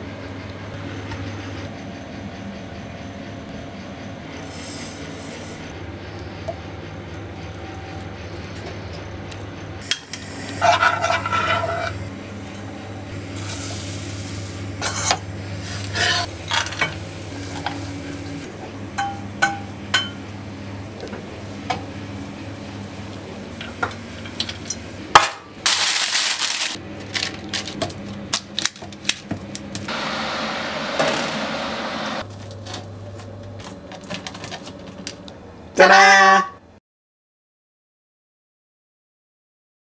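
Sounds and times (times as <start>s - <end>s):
steady low hum: 0.0s - 25.8s
metal spoon scraping saucepan: 10.6s - 12.1s, 14.8s - 16.7s.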